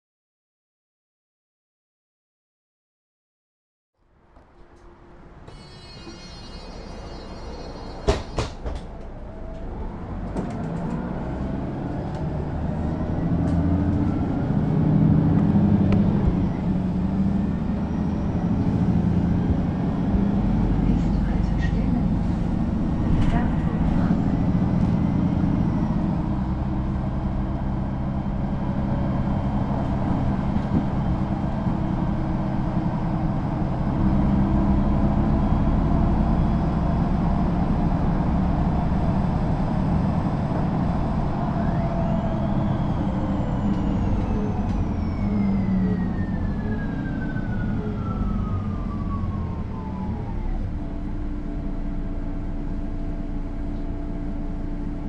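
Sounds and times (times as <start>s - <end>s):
bus engine idling: 4.2s - 55.0s
rising and falling whine: 30.6s - 54.9s.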